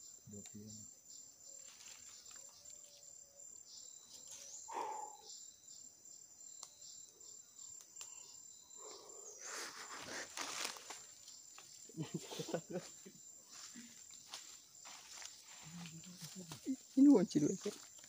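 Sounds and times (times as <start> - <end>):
insects shrilling: 6.4 - 18.0.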